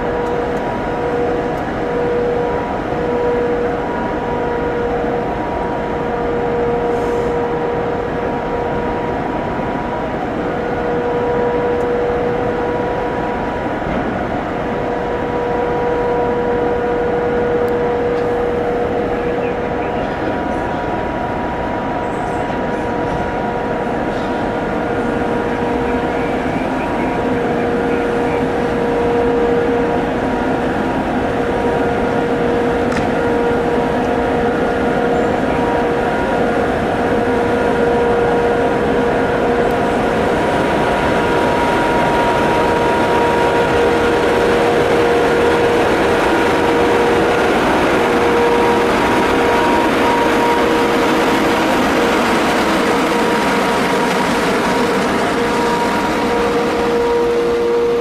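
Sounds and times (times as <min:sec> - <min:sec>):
electric locomotive hum and whine: 0:00.0 - 0:58.0
cooling fans rushing: 0:16.4 - 0:58.0.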